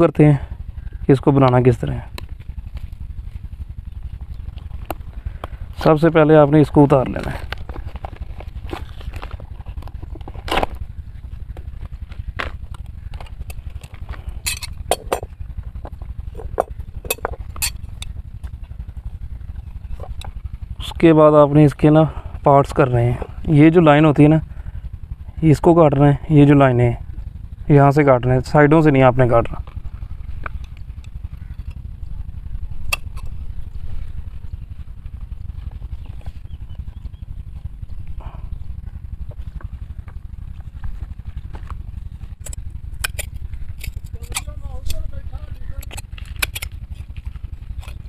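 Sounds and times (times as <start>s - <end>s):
low steady rumble: 0.0s - 48.0s.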